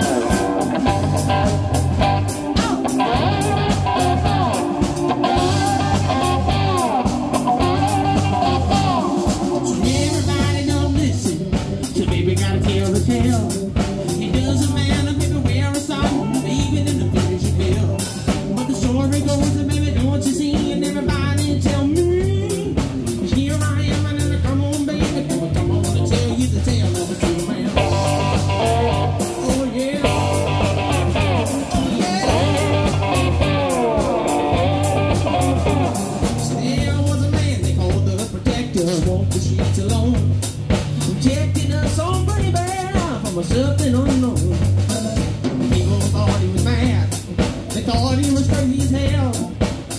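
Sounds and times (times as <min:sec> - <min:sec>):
harmonica wailing: 0:00.0 - 0:09.8, 0:29.8 - 0:36.4
slide guitar: 0:00.0 - 0:10.9, 0:27.5 - 0:37.4
drums: 0:00.0 - 0:49.9
electric bass: 0:00.0 - 0:49.9.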